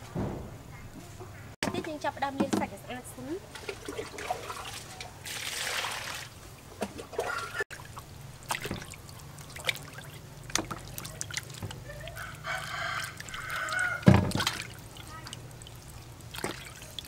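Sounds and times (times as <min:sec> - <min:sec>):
water splashing and trickling: 0:01.6 - 0:17.0
rooster crowing: 0:11.9 - 0:14.2.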